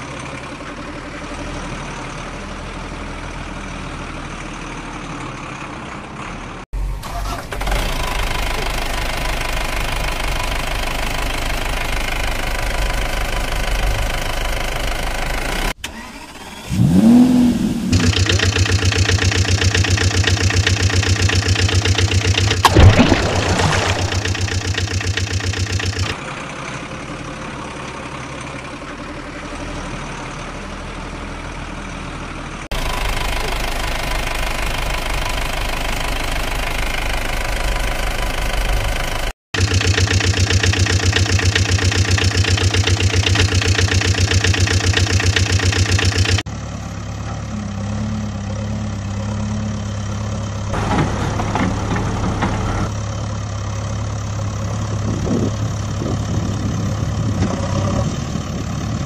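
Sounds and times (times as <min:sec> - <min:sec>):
engine idling with knocking beat: 0:08.2 - 0:15.7, 0:18.0 - 0:22.8, 0:24.0 - 0:49.3.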